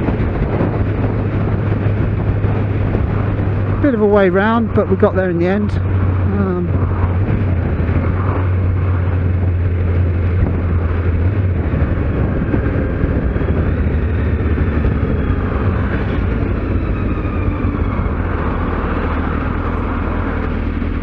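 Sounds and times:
motorcycle engine running: 0:00.0 - 0:21.0
wind and road noise: 0:00.0 - 0:21.0.

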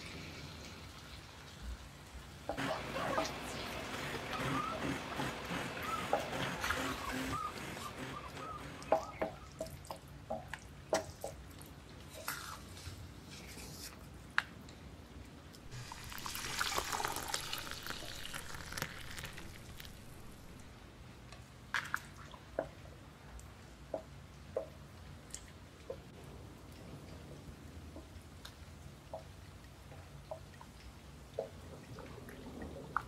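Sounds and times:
thick soup plopping: 0:15.7 - 0:20.7.

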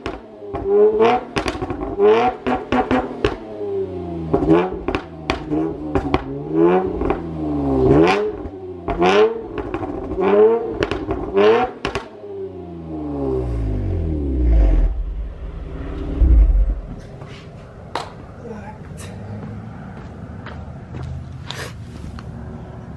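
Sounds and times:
car engine revving: 0:00.5 - 0:17.2
exhaust cracks: 0:13.2 - 0:18.1.

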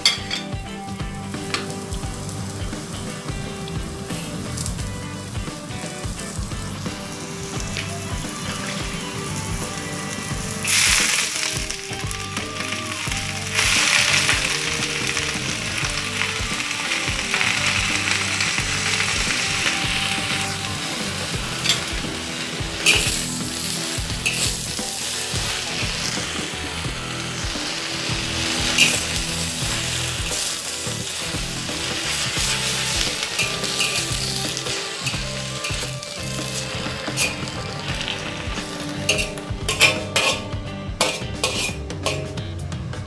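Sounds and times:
leaves sizzling in hot oil: 0:00.0 - 0:42.3
metal spatula scraping a wok: 0:17.3 - 0:42.4.

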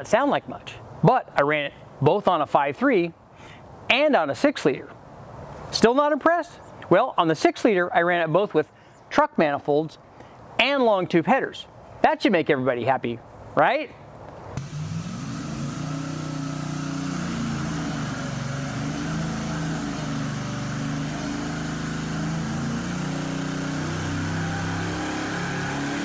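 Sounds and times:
engine running on dyno: 0:14.6 - 0:26.0.

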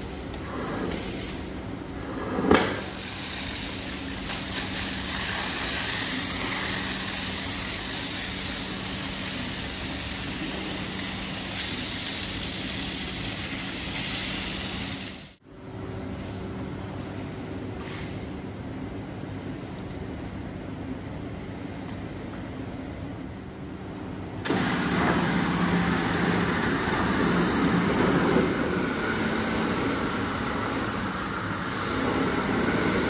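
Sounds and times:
rug-cleaning machine hissing: 0:02.8 - 0:15.4, 0:24.5 - 0:33.0.

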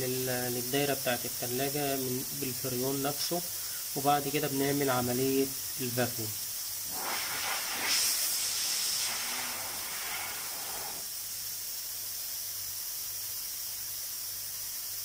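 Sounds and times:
refrigerant hissing: 0:00.0 - 0:15.0.

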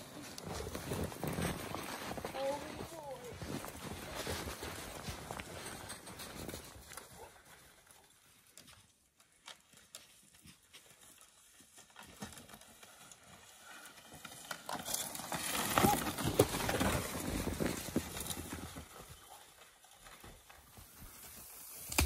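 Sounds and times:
footsteps crunching in snow: 0:00.0 - 0:08.9, 0:14.8 - 0:22.0.

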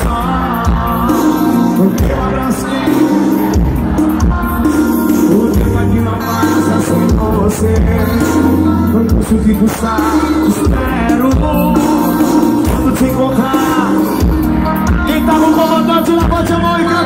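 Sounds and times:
lead singer's voice: 0:00.0 - 0:17.0
live band playing: 0:00.0 - 0:17.0.

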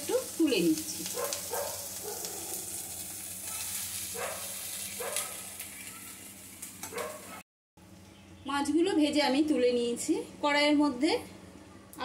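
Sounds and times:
oil sizzling: 0:00.0 - 0:07.4.

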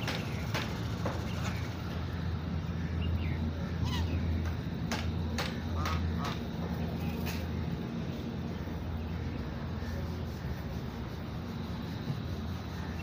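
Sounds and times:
ducks calling softly: 0:01.4 - 0:04.6.

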